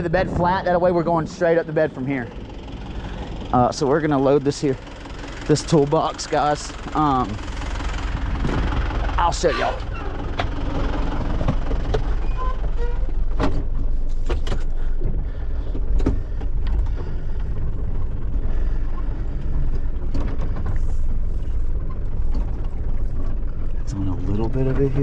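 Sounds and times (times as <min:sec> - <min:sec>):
diesel engine rumbling: 0:00.0 - 0:25.0
clicks and knocks in cab: 0:13.2 - 0:18.1.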